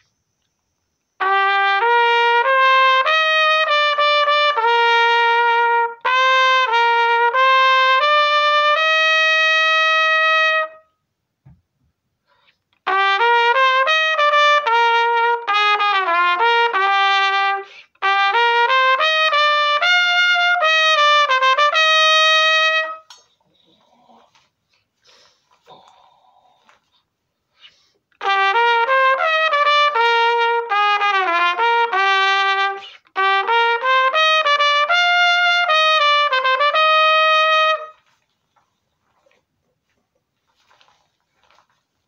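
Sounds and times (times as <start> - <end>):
pocket trumpet playing melody: 1.2 - 11.0, 12.8 - 23.2, 28.1 - 38.2.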